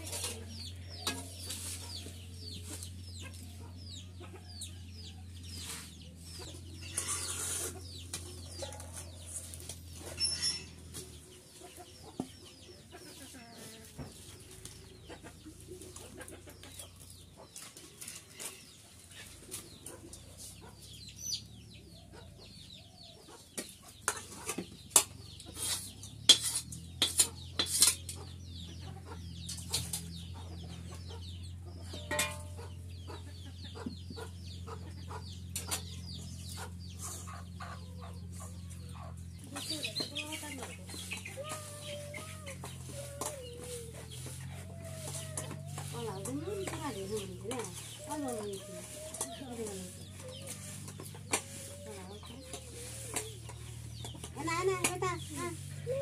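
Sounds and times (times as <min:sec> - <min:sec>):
spoon clinking on metal bowls: 0:00.0 - 0:01.8, 0:08.1 - 0:11.0, 0:31.9 - 0:32.8
chickens clucking: 0:00.0 - 0:56.0.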